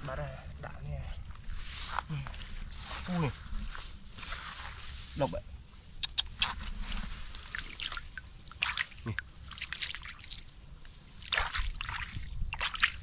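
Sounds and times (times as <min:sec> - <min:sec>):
hands splashing in water: 0:07.3 - 0:10.5, 0:11.2 - 0:13.0.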